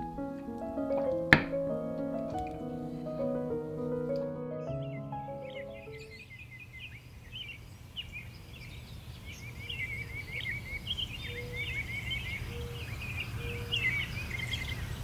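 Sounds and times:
songbirds chirping and twittering: 0:03.2 - 0:15.0.

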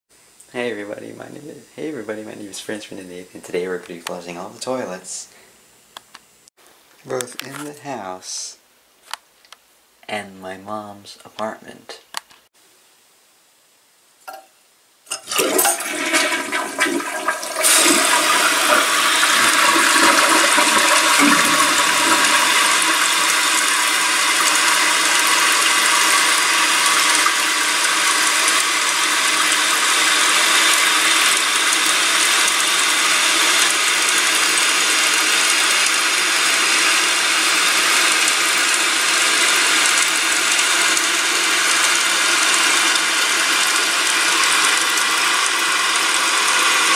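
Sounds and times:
toilet flushing: 0:15.1 - 0:46.9
toilet tank refilling: 0:15.1 - 0:46.9.

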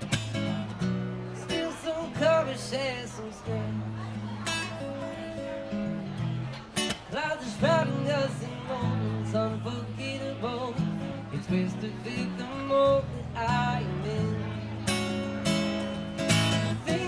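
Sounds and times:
acoustic guitar strumming: 0:00.0 - 0:17.0
man singing: 0:01.4 - 0:04.1, 0:07.0 - 0:15.0, 0:16.5 - 0:17.0.

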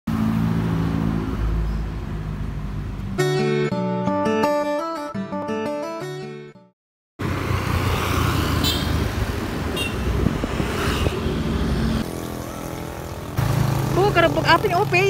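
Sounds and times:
wind and road noise: 0:00.1 - 0:03.2, 0:07.2 - 0:15.0
motorcycle engine: 0:10.6 - 0:15.0.

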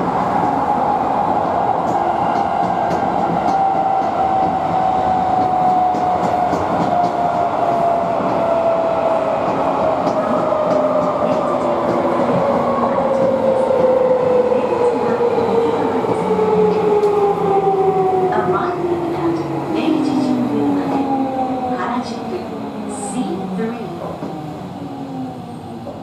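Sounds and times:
train rolling noise: 0:00.0 - 0:26.0
faint rail clicks: 0:01.4 - 0:04.6.

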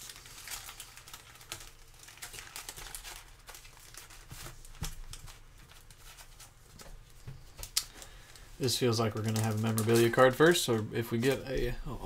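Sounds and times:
foil packs crinkling: 0:00.0 - 0:11.9
small crackles and clicks: 0:00.1 - 0:06.3, 0:07.5 - 0:08.5.

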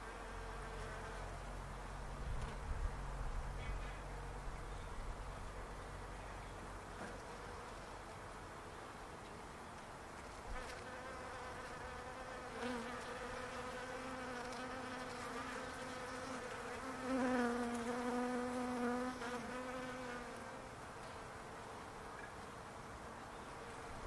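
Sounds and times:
hum of many bees: 0:00.0 - 0:24.0
single bee buzzing close by: 0:10.5 - 0:22.1.

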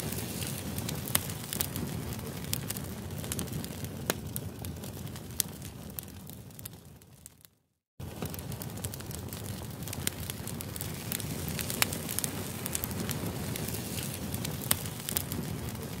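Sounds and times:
wood fire crackling and popping: 0:00.0 - 0:16.0.

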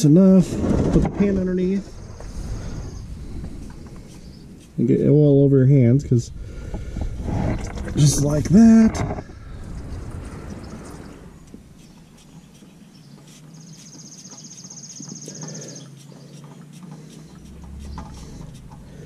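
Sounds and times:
engine oil running into pan: 0:16.4 - 0:19.0.

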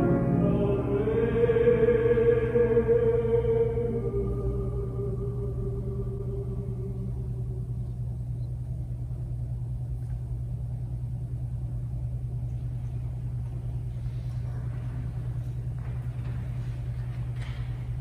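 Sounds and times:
piano music: 0:00.0 - 0:07.4
low room rumble: 0:00.0 - 0:18.0.

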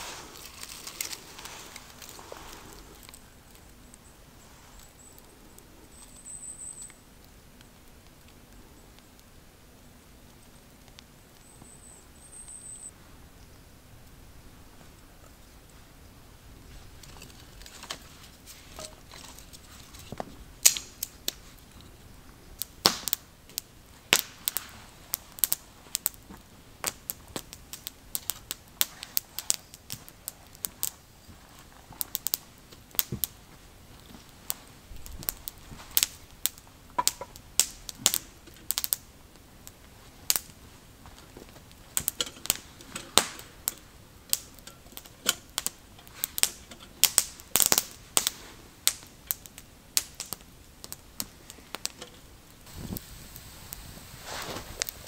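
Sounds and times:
campfire crackling: 0:00.0 - 0:55.0.

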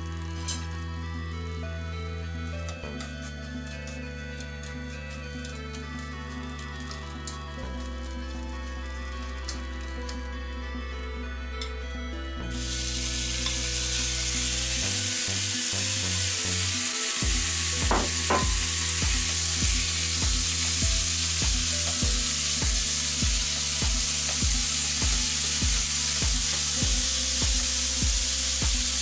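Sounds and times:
background music with beat: 0:00.0 - 0:29.0
meat sizzling in a frying pan: 0:12.5 - 0:29.0.

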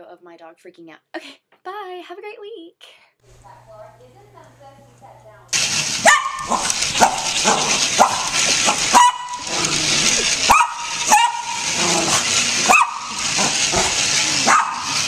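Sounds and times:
small dog barking: 0:06.0 - 0:15.0.

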